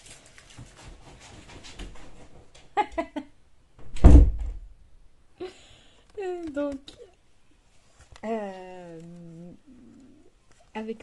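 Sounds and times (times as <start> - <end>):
woman laughing: 2.8 - 3.4
loud bass-heavy thump: 3.9 - 4.7
faint shuffling: 6.0 - 11.0.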